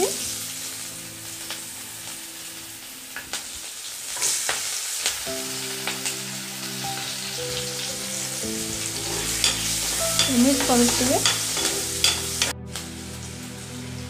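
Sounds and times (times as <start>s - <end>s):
onions sizzling in oil: 0.0s - 14.0s
metal spoon scraping a pan: 8.8s - 12.5s.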